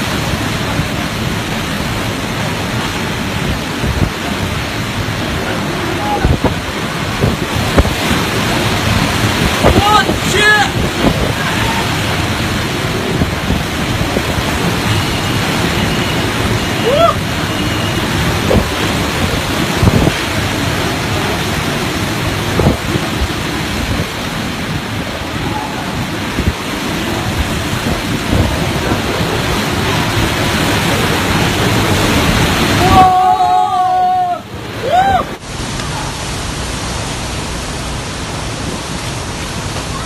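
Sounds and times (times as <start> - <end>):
gusts thumping microphone: 0.0 - 16.7, 18.0 - 32.8
strong wind and driving rain: 0.0 - 40.0.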